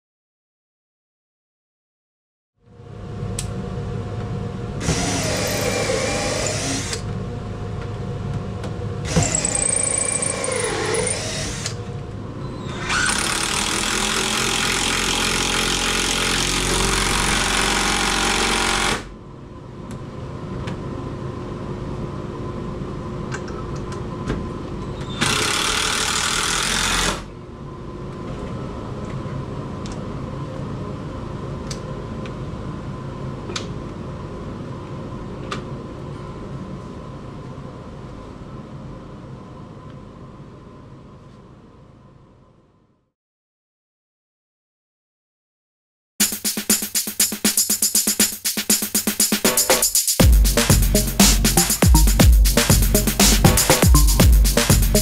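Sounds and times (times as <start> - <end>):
cordless drill into timber: 4.8 - 7.0, 9.0 - 11.8, 12.7 - 19.1, 25.2 - 27.3.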